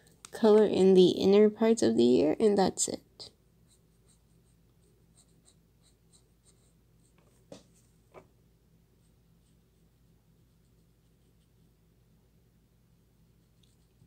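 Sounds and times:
marker scratching on paper: 0:03.7 - 0:07.6.

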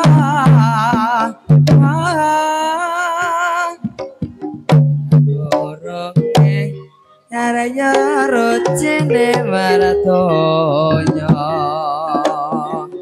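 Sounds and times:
person singing with vibrato: 0:00.0 - 0:04.1, 0:05.3 - 0:13.0
gamelan music: 0:04.0 - 0:13.0.

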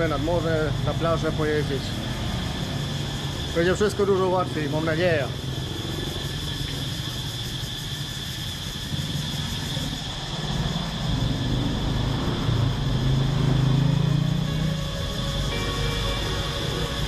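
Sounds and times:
vehicle engine passing: 0:09.9 - 0:17.0.

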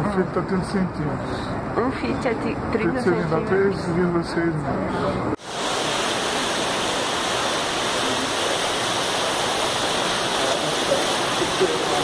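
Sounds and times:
falling water rushing: 0:05.4 - 0:12.0.

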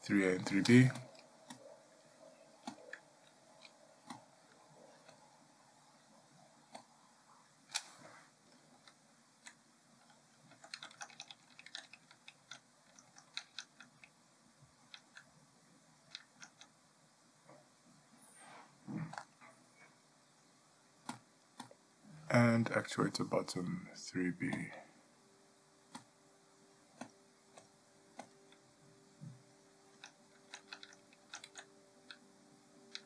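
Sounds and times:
mouse and keyboard clicks: 0:02.6 - 0:04.2, 0:08.5 - 0:14.2, 0:16.1 - 0:16.7, 0:27.0 - 0:28.6, 0:30.0 - 0:32.2.

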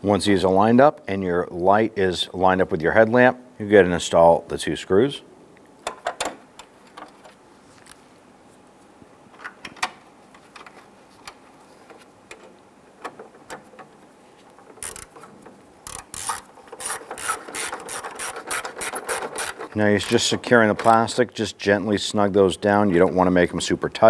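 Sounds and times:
hand ratchet clicking: 0:14.7 - 0:21.0.

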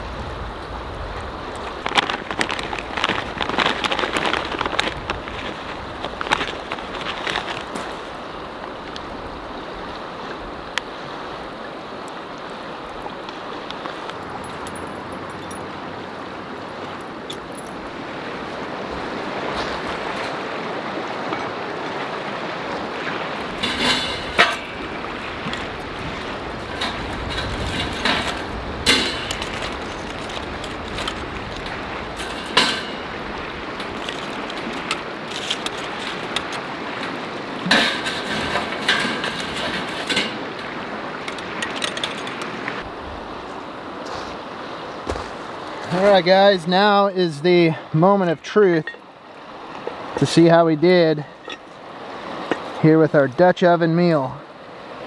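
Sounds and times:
river rushing: 0:00.0 - 0:55.0
metal lid and tongs clanking: 0:23.5 - 0:25.7, 0:26.6 - 0:29.8, 0:32.2 - 0:33.2, 0:33.8 - 0:40.6.

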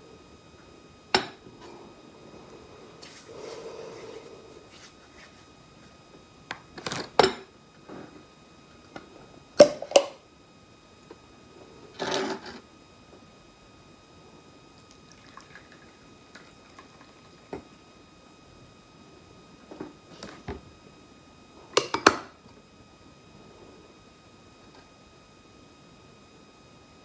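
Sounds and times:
drink trickling into bowl: 0:15.1 - 0:17.3.

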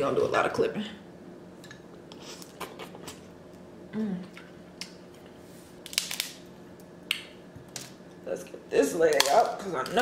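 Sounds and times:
person humming: 0:03.9 - 0:04.4
crab shell cracking: 0:05.8 - 0:07.3.

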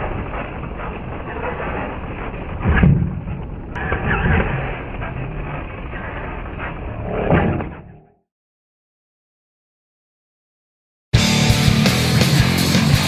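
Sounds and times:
toy truck motor and tyres: 0:03.8 - 0:07.0.

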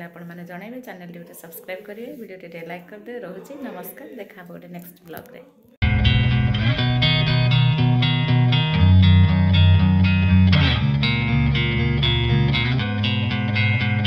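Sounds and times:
bass line: 0:05.8 - 0:14.0
plucked guitar: 0:05.8 - 0:14.0.

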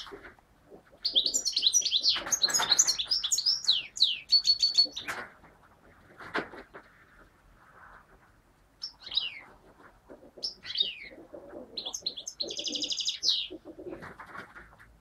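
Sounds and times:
goldfinch singing: 0:01.0 - 0:05.1, 0:08.8 - 0:09.4, 0:10.4 - 0:11.1, 0:11.8 - 0:13.6.

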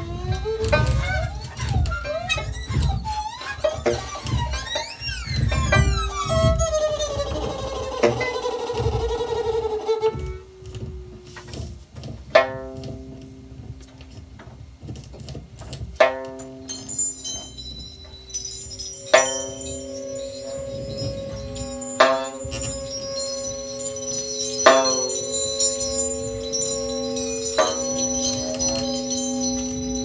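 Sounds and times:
wavering bowed tone: 0:00.0 - 0:14.3, 0:16.0 - 0:30.0
low held tones: 0:16.0 - 0:30.0
sharply attacked ringing notes: 0:16.0 - 0:30.0.

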